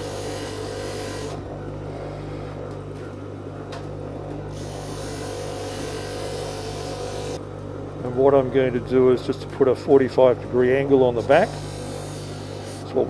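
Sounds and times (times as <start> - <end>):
sanding wheel humming: 0.0 - 2.6, 4.5 - 7.4, 8.1 - 13.0.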